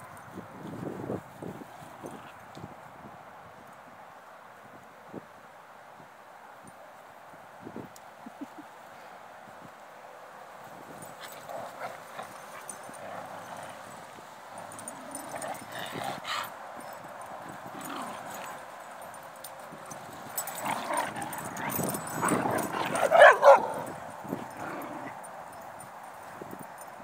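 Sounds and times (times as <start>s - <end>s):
dogs barking and yipping: 11.0s - 25.9s.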